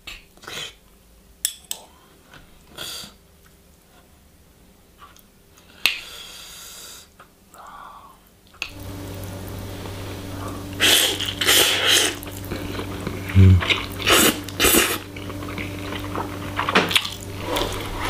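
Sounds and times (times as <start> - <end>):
steady low hum: 8.7 - 18.0.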